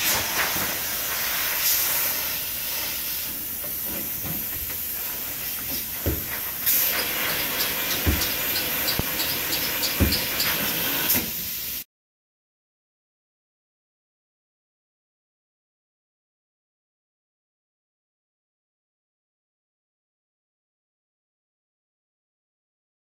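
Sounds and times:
spray foam gun hissing: 0.0s - 11.8s.

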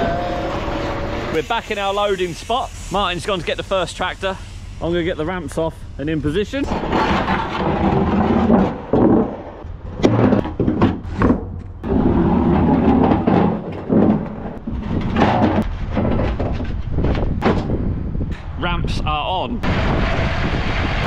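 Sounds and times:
metal ramps clanking and scraping: 0.0s - 1.4s, 6.5s - 17.8s
steady low rumble: 0.8s - 9.0s, 9.6s - 21.0s.

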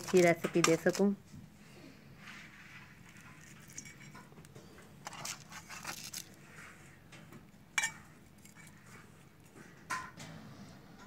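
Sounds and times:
aluminium foil crinkling: 0.0s - 1.2s, 2.4s - 4.2s, 5.0s - 6.8s.

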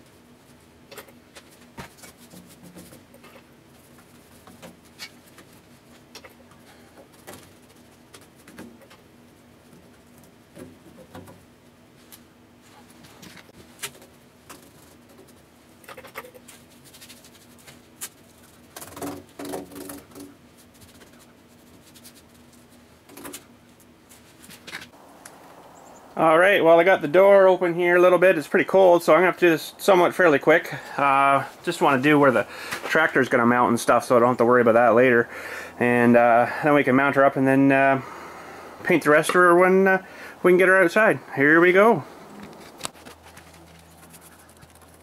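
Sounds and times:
steady low hum: 20.4s - 45.0s.

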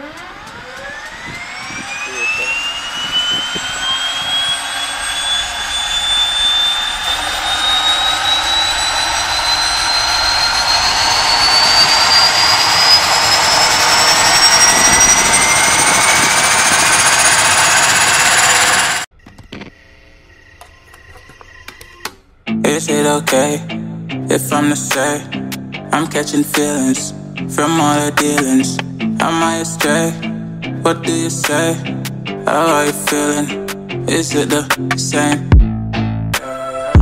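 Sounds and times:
gas turbine engine whine: 0.0s - 22.6s.

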